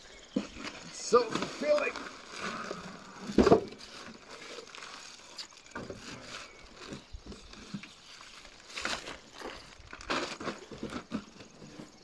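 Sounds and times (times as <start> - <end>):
plastic wrapping rustling: 0.6 - 11.4
cardboard packaging knocks: 3.3 - 3.8.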